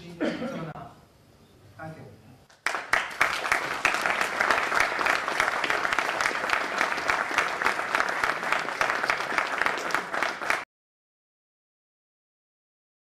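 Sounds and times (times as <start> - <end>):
audience applauding: 2.5 - 10.7.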